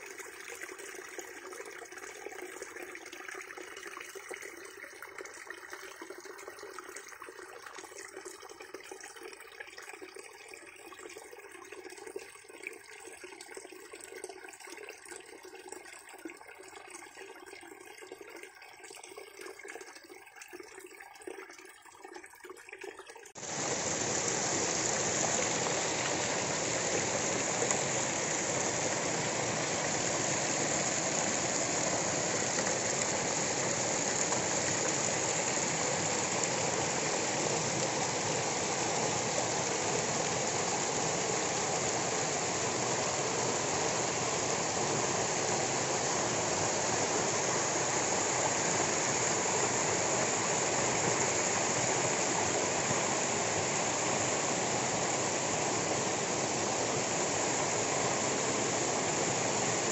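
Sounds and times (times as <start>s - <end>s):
water cascading over stones: 23.3s - 59.9s.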